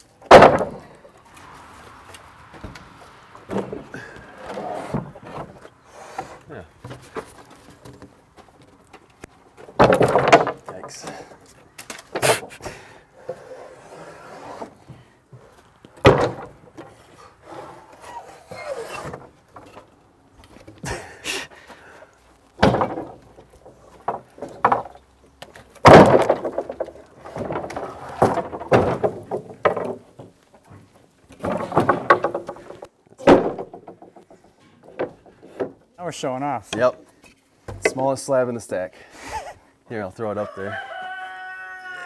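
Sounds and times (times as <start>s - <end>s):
wood scraping and shuffling: 0.0s - 39.5s
wood knocking on wood: 0.3s - 0.8s, 9.6s - 11.0s, 16.0s - 16.9s, 22.6s - 25.0s, 25.8s - 35.8s, 37.7s - 38.0s.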